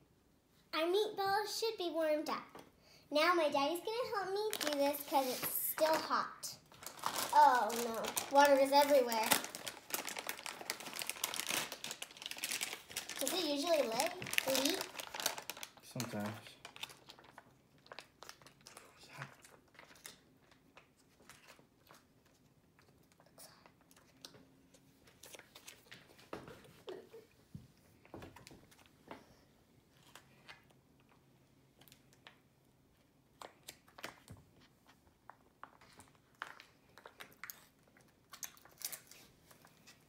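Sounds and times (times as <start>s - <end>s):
foil pouch crinkling: 4.4s - 6.0s, 6.6s - 20.6s.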